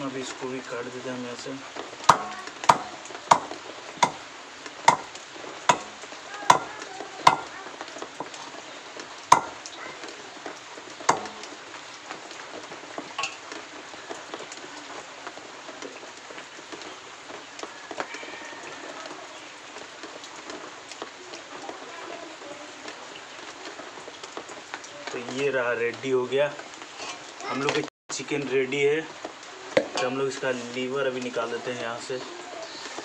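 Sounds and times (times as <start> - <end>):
faint knocks: 2.1 - 4.2, 4.9 - 7.5, 9.3 - 9.6, 11.1 - 11.5
knife chopping chicken on wood: 2.1 - 4.2, 4.9 - 6.7, 7.3 - 7.5, 9.3 - 9.6, 11.1 - 11.4.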